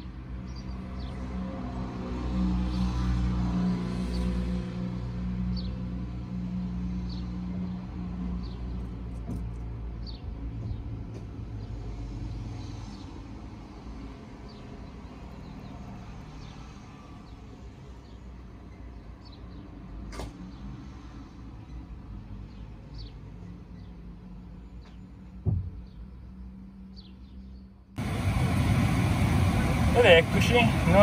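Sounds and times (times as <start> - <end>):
small birds chirping: 0.4 - 1.3, 7.0 - 13.2, 14.4 - 27.9
low vehicle hum: 24.6 - 31.0.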